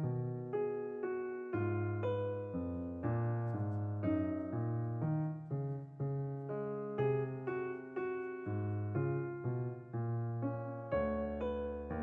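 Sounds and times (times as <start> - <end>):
slow piano melody: 0.0 - 12.0.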